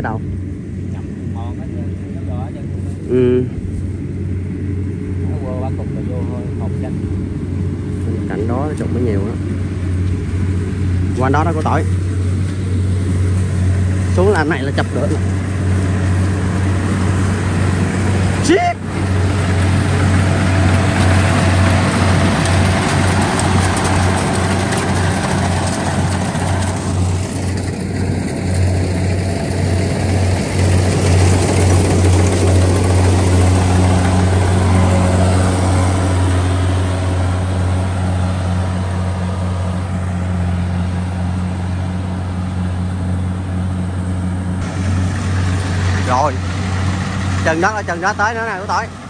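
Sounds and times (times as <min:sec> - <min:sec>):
dense rushing noise: 0:00.0 - 0:49.0
low engine hum: 0:00.0 - 0:49.0.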